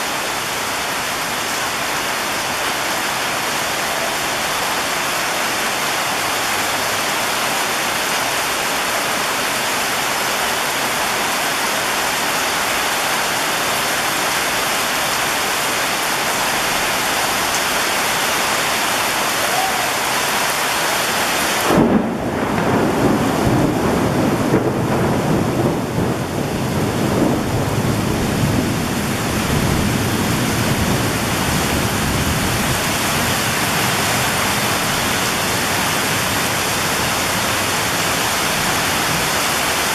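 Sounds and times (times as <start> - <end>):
heavy rain pouring: 0.0 - 39.9
thunder rumbling: 21.6 - 39.6.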